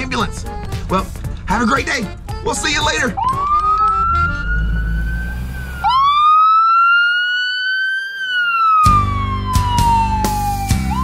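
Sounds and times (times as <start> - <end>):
low engine rumble: 0.0 - 6.4
ambulance siren wailing: 2.2 - 11.0
music with a beat: 8.9 - 11.0.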